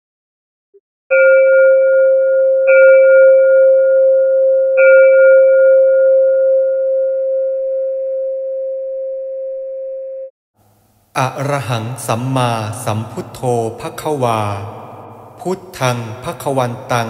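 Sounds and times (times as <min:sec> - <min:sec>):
singing bowl ringing: 0:01.1 - 0:10.3.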